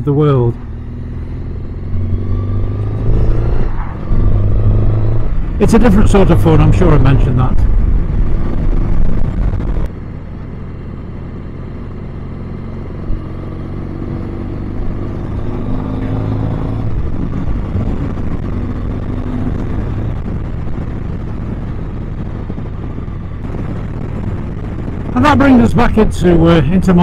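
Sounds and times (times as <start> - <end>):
motorcycle engine running: 7.6 - 27.0.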